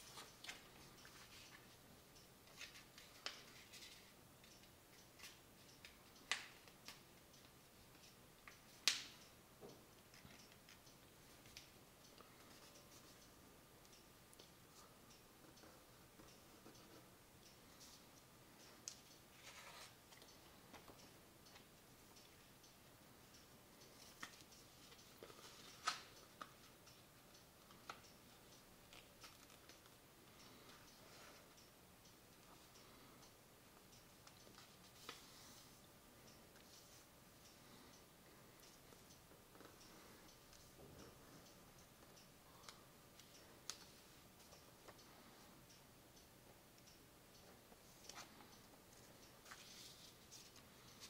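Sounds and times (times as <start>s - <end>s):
paper creasing ticks: 27.6s - 31.4s.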